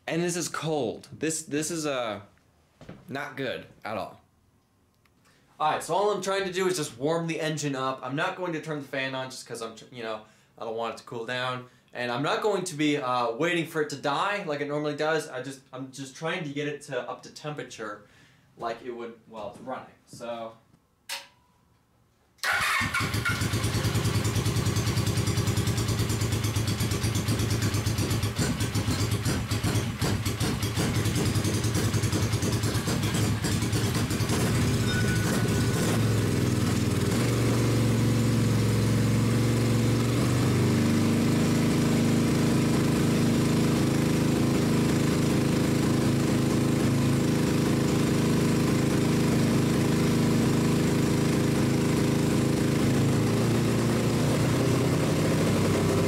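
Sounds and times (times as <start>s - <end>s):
motorcycle engine running: 22.5s - 56.0s.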